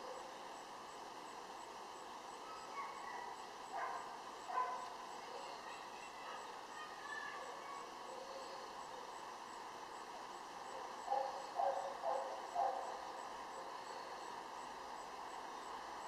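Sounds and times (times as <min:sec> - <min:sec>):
outdoor background hiss: 0:00.0 - 0:16.0
dog barking: 0:02.5 - 0:04.9, 0:11.0 - 0:13.1.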